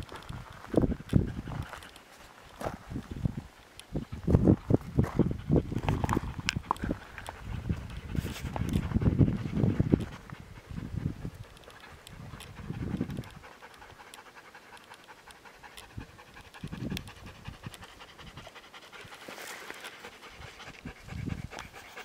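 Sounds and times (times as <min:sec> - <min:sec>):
dog panting: 0:00.1 - 0:22.0.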